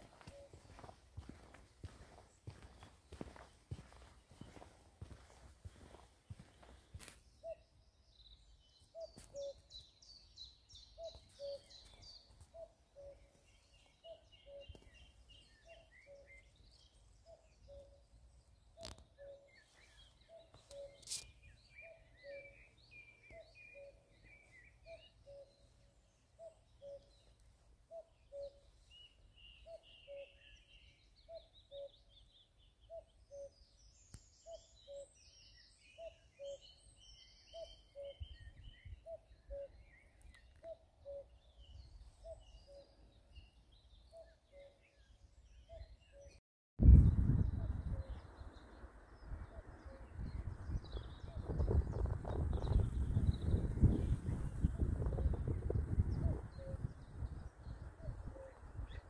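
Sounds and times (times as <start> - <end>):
cuckoo calling: 0.0 - 1.0, 7.0 - 7.8, 8.9 - 10.0, 10.8 - 25.8, 26.4 - 46.4, 56.0 - 57.0, 57.9 - 59.0
songbirds twittering: 0.0 - 59.0.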